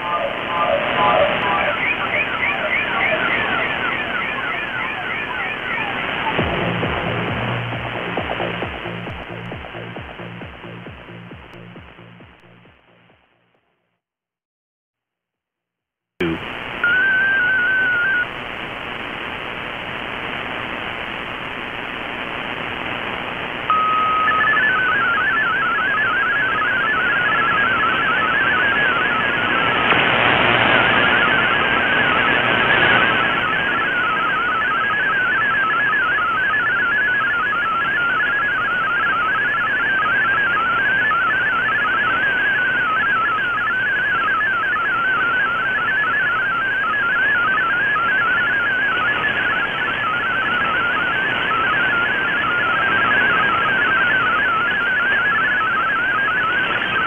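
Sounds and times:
warbling digital data tones: 0.0s - 6.5s, 23.7s - 29.8s
radio static hiss: 0.0s - 13.1s, 16.2s - 57.0s.

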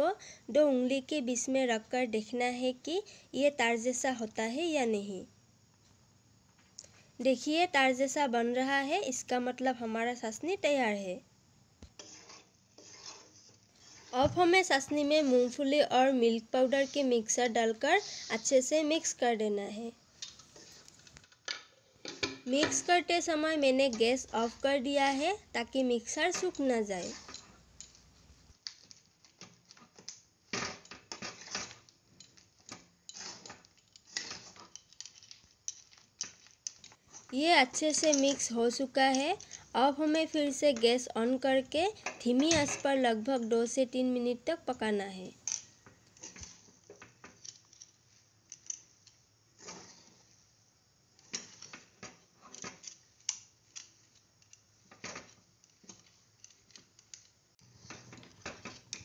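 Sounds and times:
metal spatula scraping a pan: 12.0s - 18.6s, 26.2s - 28.1s, 31.1s - 35.1s, 49.6s - 50.4s.

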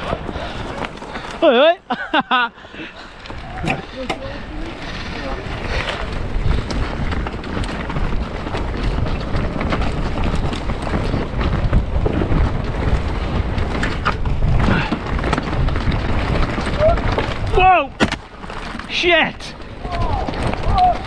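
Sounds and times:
bike rattling and knocking: 0.0s - 21.0s
tyres running over dirt: 0.0s - 21.0s
wind rush on microphone: 2.6s - 21.0s.

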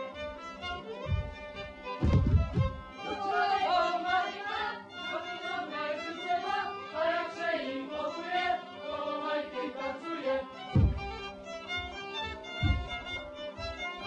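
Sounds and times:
fiddle accompaniment: 0.0s - 14.0s
men and women singing in unison: 3.0s - 11.0s.

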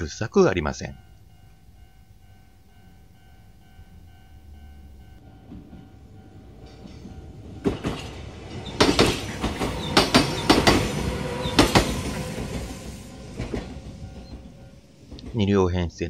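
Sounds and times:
faint crossing warning tone: 0.0s - 15.3s
train wheels clacking over rail joints: 5.4s - 15.5s.

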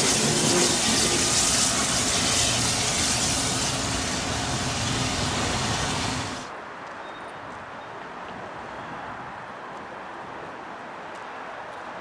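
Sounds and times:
steam locomotive hissing: 0.0s - 6.5s.

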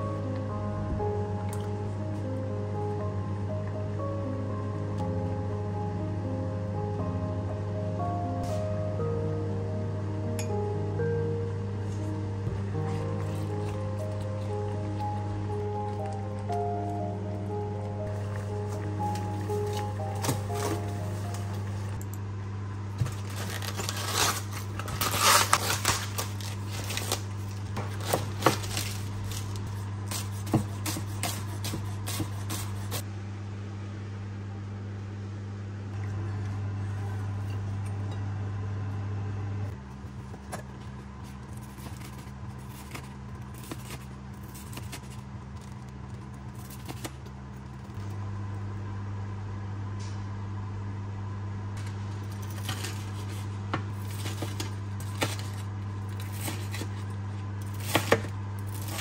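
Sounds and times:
low hum: 0.0s - 59.0s
knife shredding cabbage on board: 27.8s - 33.0s, 56.2s - 57.1s.

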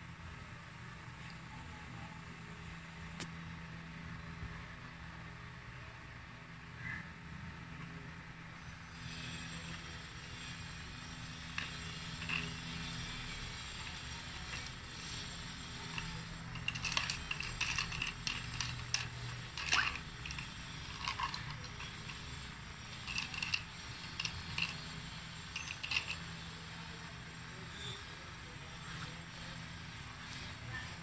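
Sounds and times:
metal bolts clinking in cup: 11.4s - 26.6s.

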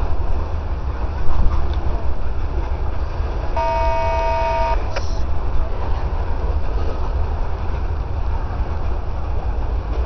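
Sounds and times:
freight train rumbling past: 0.0s - 10.0s
train horn: 3.6s - 4.9s.

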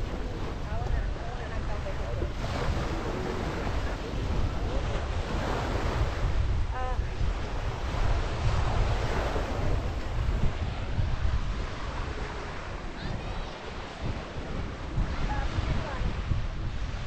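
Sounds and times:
small waves on sandy beach: 0.0s - 17.0s
wind buffeting microphone: 0.0s - 17.0s.

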